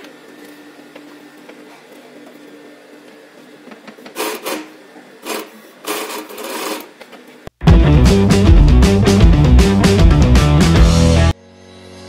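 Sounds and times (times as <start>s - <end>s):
sewing machine stitching leather: 4.0s - 7.0s
sewing machine humming: 4.2s - 6.9s.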